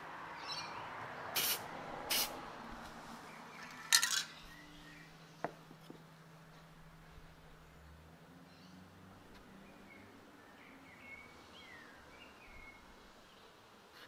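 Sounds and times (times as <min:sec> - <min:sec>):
aerosol spray can hissing: 0:01.4 - 0:02.4.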